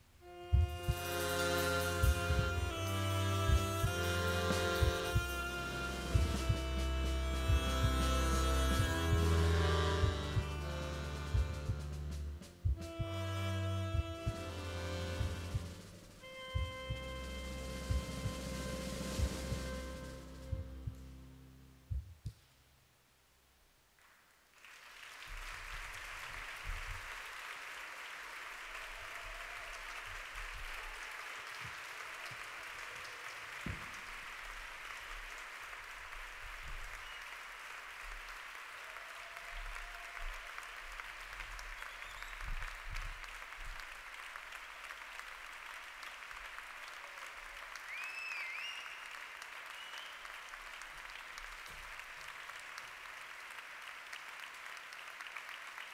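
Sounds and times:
audience applause: 0:24.0 - 0:55.9.

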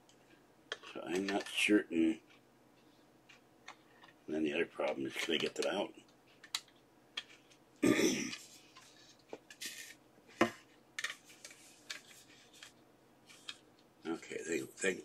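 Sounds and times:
person clearing throat: 0:07.8 - 0:08.4.

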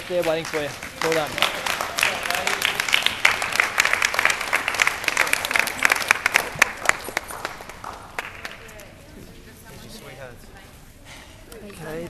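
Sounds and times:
people clapping: 0:00.0 - 0:09.1.

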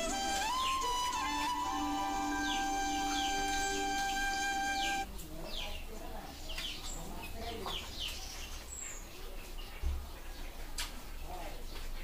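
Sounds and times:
background music of held notes: 0:00.0 - 0:05.1
bird chirps: 0:00.0 - 0:10.6.

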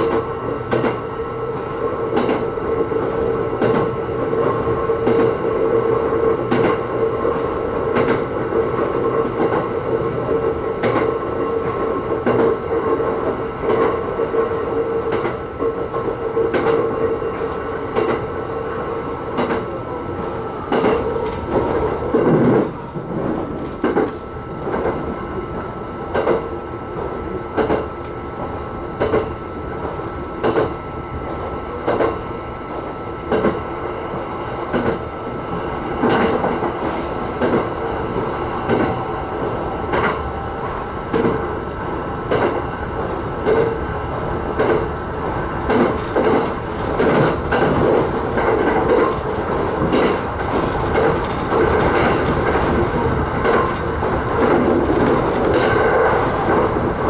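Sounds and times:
train wheels clicking over rail joints: 0:00.0 - 0:05.5, 0:06.3 - 0:18.3, 0:19.3 - 0:25.1, 0:26.1 - 0:26.5, 0:27.5 - 0:28.2, 0:29.0 - 0:29.3, 0:30.4 - 0:30.8, 0:31.8 - 0:32.2, 0:33.3 - 0:33.6, 0:34.7 - 0:35.0, 0:36.0 - 0:37.8, 0:38.7 - 0:39.0, 0:39.9 - 0:40.3, 0:41.1 - 0:41.5, 0:42.3 - 0:43.8, 0:44.6 - 0:45.0, 0:45.6 - 0:57.0
train running hum: 0:00.0 - 0:57.0.

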